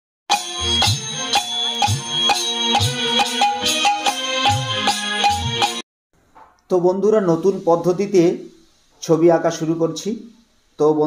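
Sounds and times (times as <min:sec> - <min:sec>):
instrumental music with beat: 0:00.3 - 0:05.8.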